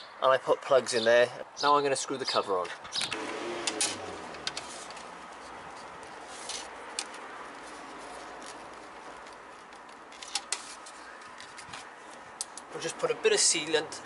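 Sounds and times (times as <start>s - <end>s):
steady outdoor hiss: 0.0s - 14.0s
screwdriver clicks and scrapes: 3.7s - 12.7s.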